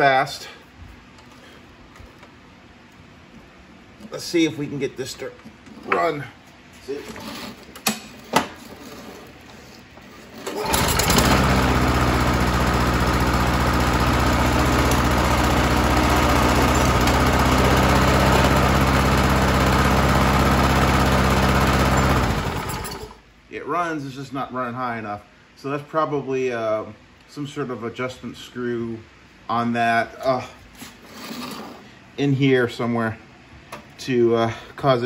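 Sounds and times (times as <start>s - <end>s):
lawnmower engine running: 10.3s - 23.2s.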